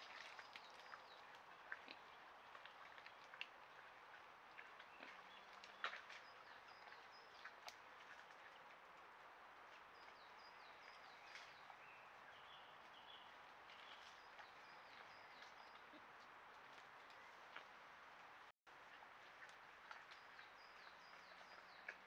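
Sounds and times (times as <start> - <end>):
songbird singing: 10.0 - 16.0, 20.0 - 22.0.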